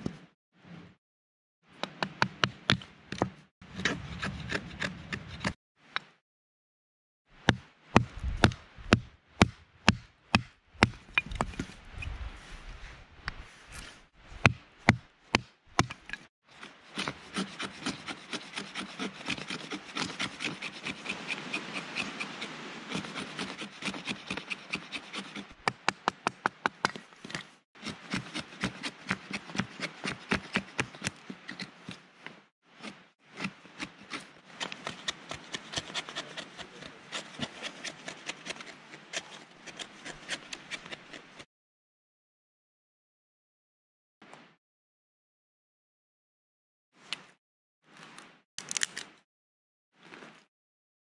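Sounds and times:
knife scraping wood: 1.9 - 5.6, 13.7 - 41.4.

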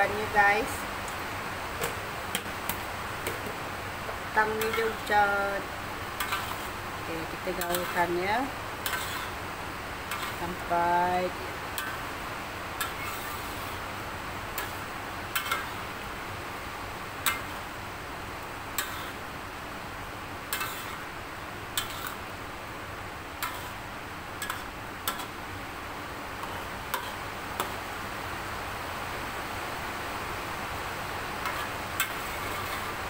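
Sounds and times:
rain hissing: 0.0 - 33.0
spatula scraping metal wok: 4.4 - 9.4, 10.0 - 12.0, 12.8 - 13.9, 14.5 - 16.0, 17.2 - 17.7, 18.7 - 19.3, 20.5 - 21.1, 21.7 - 22.3, 23.4 - 23.8, 24.4 - 25.4, 26.4 - 27.8, 31.4 - 33.0.

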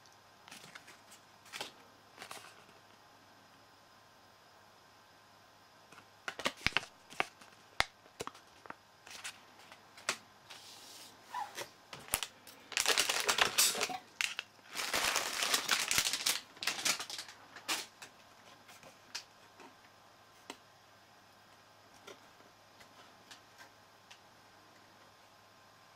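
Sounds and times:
plastic wrapping crinkling: 11.3 - 18.0.

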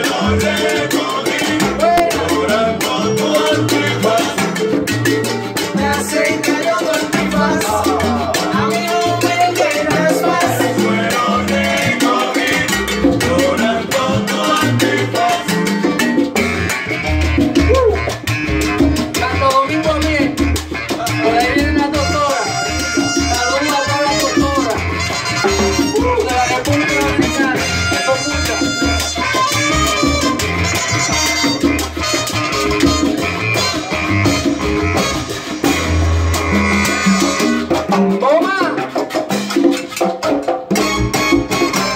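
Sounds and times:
conga drums: 0.0 - 41.9
maracas: 0.0 - 41.9
salsa band playing: 0.0 - 41.9.

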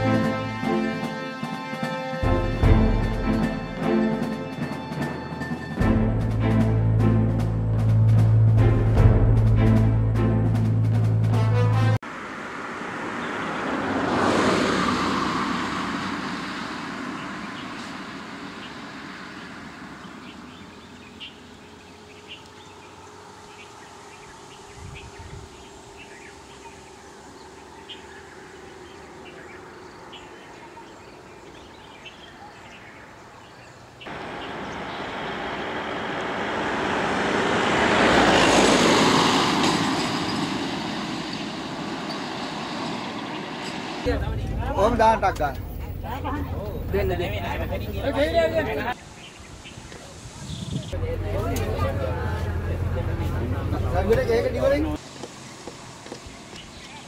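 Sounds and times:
heavy vehicle engine and tyres: 2.0 - 24.8, 34.0 - 49.0, 50.8 - 57.0
car driving past: 12.0 - 24.7, 34.1 - 49.0.

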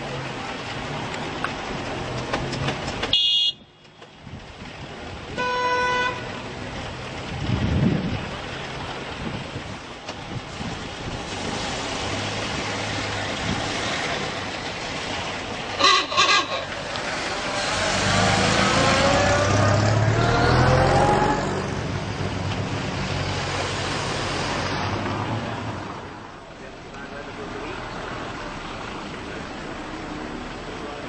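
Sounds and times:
car horn honks: 3.1 - 4.0, 5.4 - 6.4, 15.8 - 16.7
car engine revving: 16.6 - 25.9.

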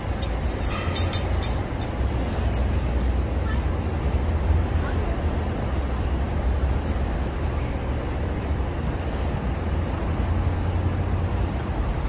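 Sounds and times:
traffic rumble: 0.0 - 12.0.

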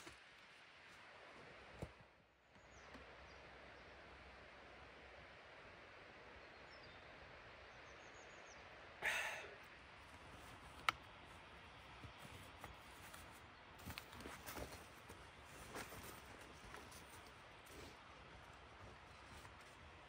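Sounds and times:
backpack rustling and clicking: 12.1 - 17.8.

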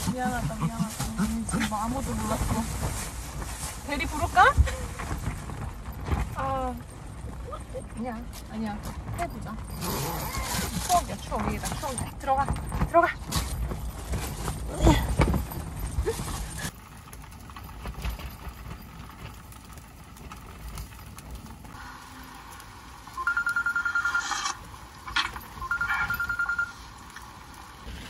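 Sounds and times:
telephone ringing: 23.1 - 24.6, 25.2 - 27.0.

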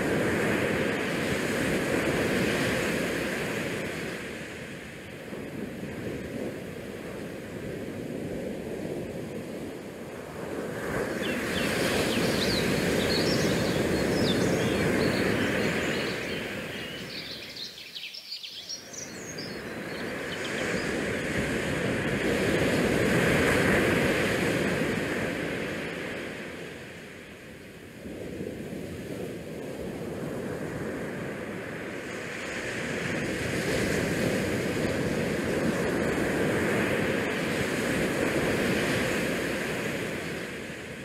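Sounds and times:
wind buffeting microphone: 0.0 - 26.2
rush of the sea: 0.0 - 41.0.

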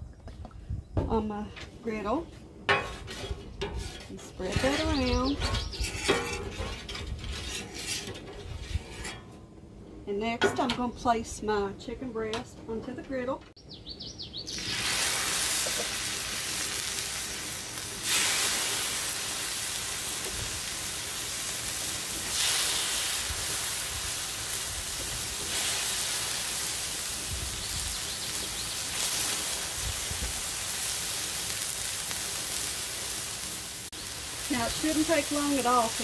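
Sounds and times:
chicken sizzling on a griddle: 14.5 - 36.0.

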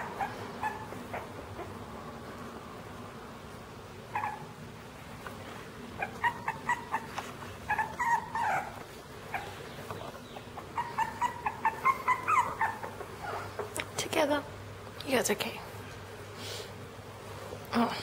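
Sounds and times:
puppies whimpering: 0.0 - 1.8, 4.1 - 4.5, 6.0 - 13.8.

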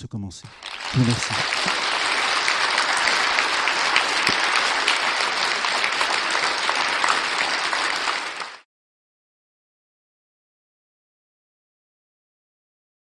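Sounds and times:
audience applauding: 0.5 - 8.7.

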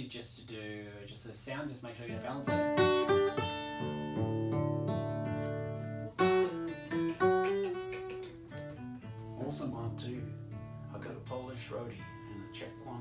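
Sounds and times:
acoustic guitar chords strummed: 2.1 - 13.0.

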